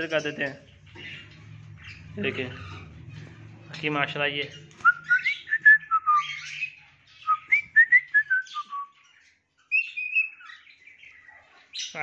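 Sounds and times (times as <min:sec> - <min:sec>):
cockatiel whistling: 0:04.8 - 0:08.9.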